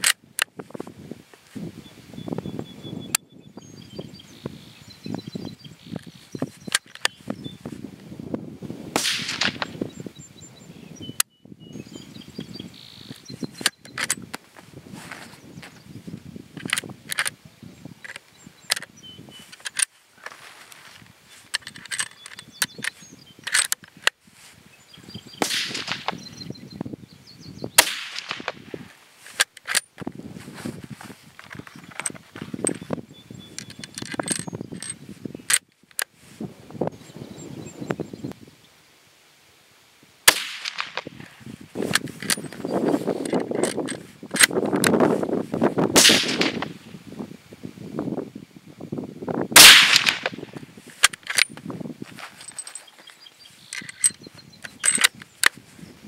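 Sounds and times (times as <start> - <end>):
rifle shot: 8.9 - 9.8, 25.4 - 26.2, 27.8 - 28.6, 40.3 - 41.1, 46.0 - 46.8, 49.6 - 50.4
handling rustling and light knocks: 13.1 - 17.4, 18.0 - 24.6, 28.2 - 36.4, 40.7 - 45.7, 50.2 - 55.9
sharp clicks: 27.8 - 28.6, 29.3 - 29.9, 33.5 - 36.1, 40.3 - 41.2, 49.6 - 51.6, 52.5 - 55.6.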